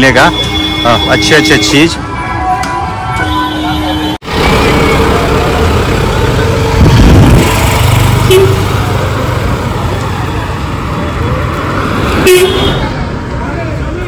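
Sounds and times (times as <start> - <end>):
car horn beep: 0.0 - 2.4, 3.1 - 4.2, 8.2 - 8.7, 12.2 - 12.8
vehicles passing: 0.0 - 14.0.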